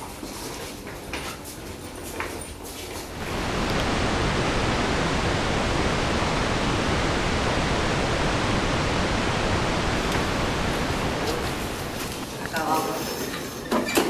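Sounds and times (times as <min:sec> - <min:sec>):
loud static hiss: 0:03.1 - 0:13.0.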